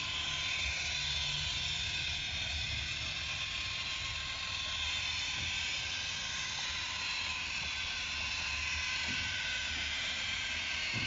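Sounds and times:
toy train motor whirring: 0:00.0 - 0:11.0.

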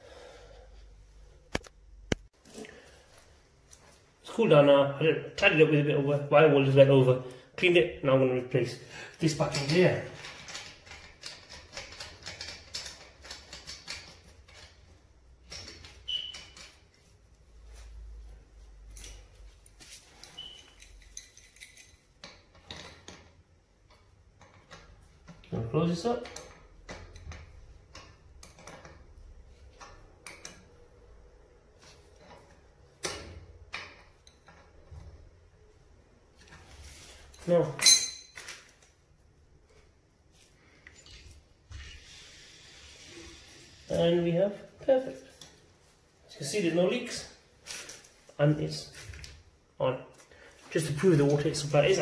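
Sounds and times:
short high squeak: 0:16.1 - 0:16.6.

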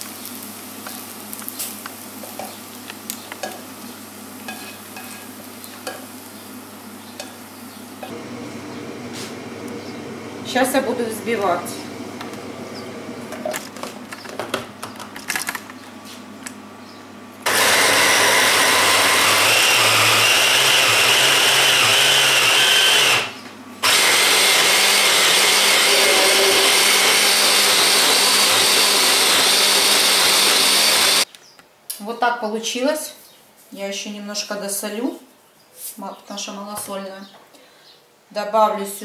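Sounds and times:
electric chopper motor running: 0:17.4 - 0:31.2.

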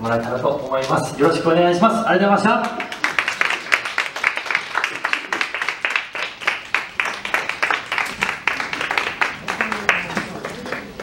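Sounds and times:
audience clapping: 0:02.4 - 0:11.0.

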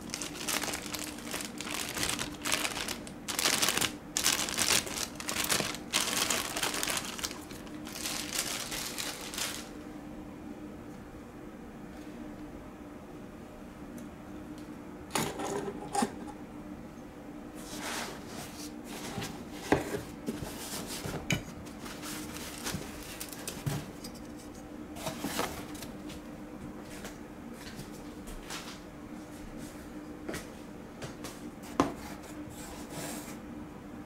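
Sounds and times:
foam packing rustling: 0:00.0 - 0:09.7, 0:21.7 - 0:23.9
faint steady hum: 0:00.0 - 0:34.0.

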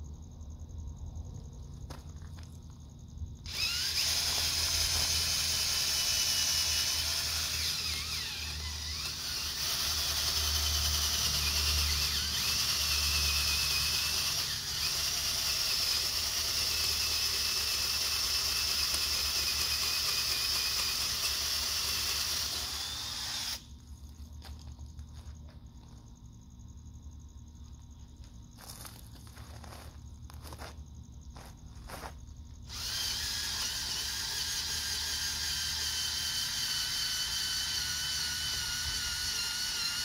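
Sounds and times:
cordless drill whining: 0:03.5 - 0:23.7, 0:32.7 - 0:40.0.

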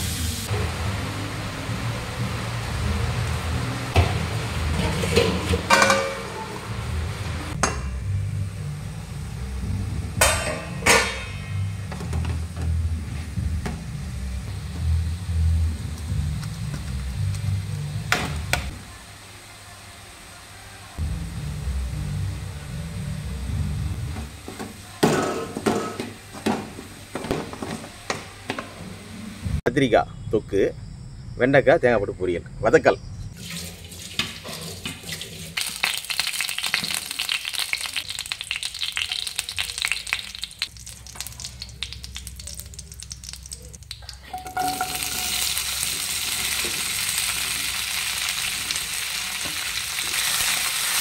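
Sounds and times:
metal lid clanking on pan: 0:04.0 - 0:06.7, 0:10.2 - 0:11.7, 0:44.3 - 0:45.5
steady low hum: 0:06.6 - 0:18.1, 0:21.0 - 0:24.2.

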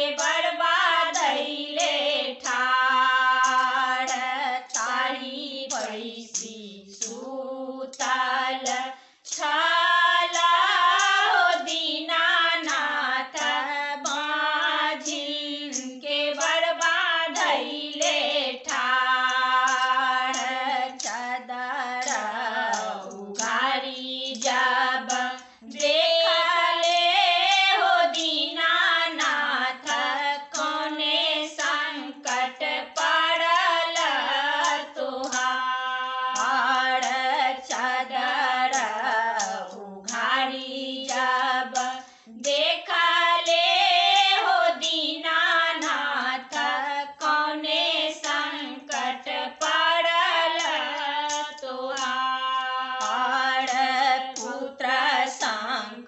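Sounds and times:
women singing unaccompanied: 0:00.0 - 0:56.0
breaths between sung lines: 0:08.9 - 0:09.3, 0:42.0 - 0:42.4.

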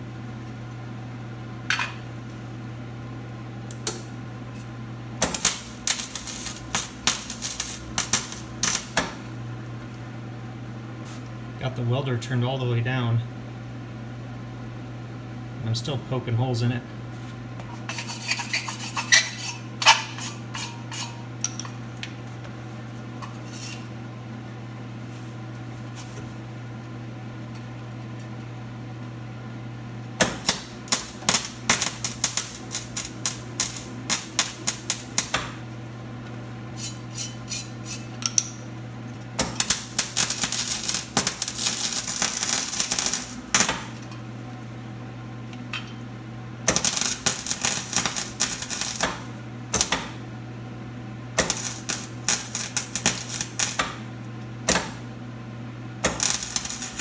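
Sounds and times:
steady low hum: 0:00.0 - 0:57.0
welder arc sputtering crackle: 0:05.2 - 0:10.0, 0:30.2 - 0:44.7, 0:46.6 - 0:50.2, 0:51.3 - 0:55.1, 0:56.0 - 0:57.0.

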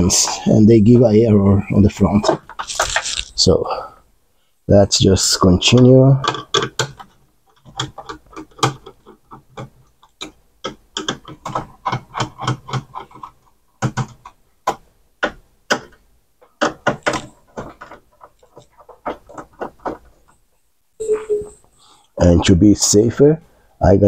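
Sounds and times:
screwdriver and hands handling parts: 0:05.7 - 0:20.4.

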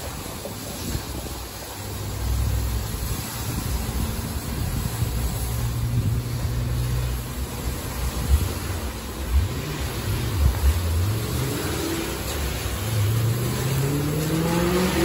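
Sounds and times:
car wash machinery motor hum: 0:00.0 - 0:15.0.

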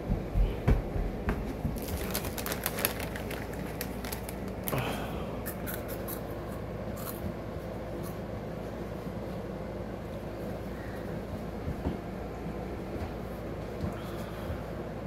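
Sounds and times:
chip bag crinkling: 0:01.7 - 0:04.8
chips crunching: 0:01.7 - 0:06.3.

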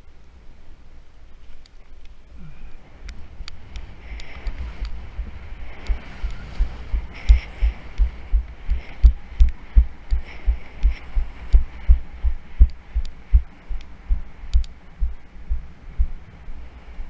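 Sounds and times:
faint sharp clicks from gear: 0:01.4 - 0:05.0, 0:13.8 - 0:14.8
muffled footsteps on sand: 0:03.1 - 0:17.0.

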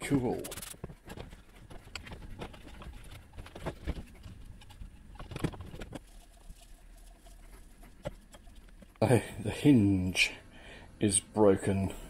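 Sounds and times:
plastic clicks and scrapes: 0:00.4 - 0:06.1.

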